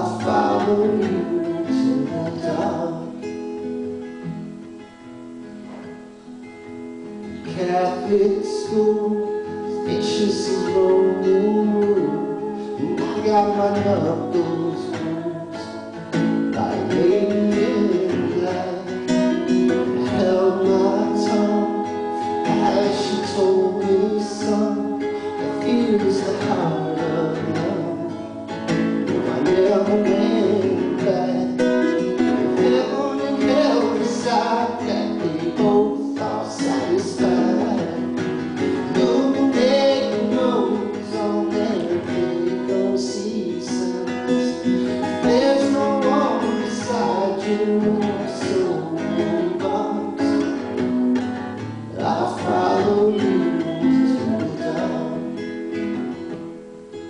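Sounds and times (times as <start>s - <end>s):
woman singing slow song: 0.0s - 3.7s, 7.4s - 50.4s, 51.3s - 55.5s
acoustic guitar: 0.0s - 57.0s.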